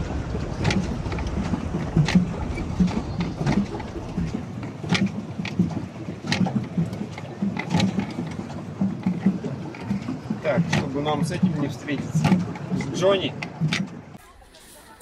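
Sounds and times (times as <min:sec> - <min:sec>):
low rhythmic churning: 0:00.0 - 0:15.0
water splashing: 0:00.0 - 0:15.0.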